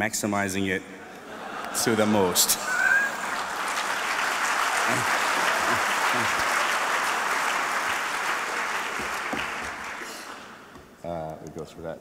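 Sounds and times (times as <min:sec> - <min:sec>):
audience applauding: 0:01.6 - 0:10.7.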